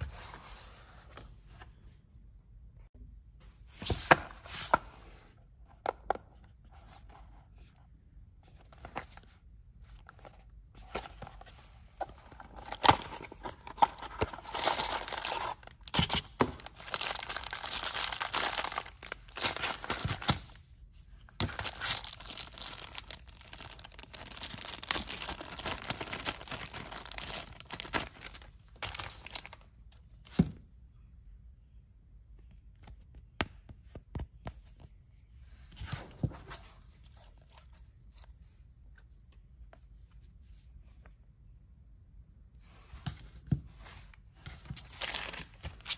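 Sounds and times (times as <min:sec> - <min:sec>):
plastic bags crinkling: 0:14.3 - 0:20.6, 0:21.5 - 0:29.5.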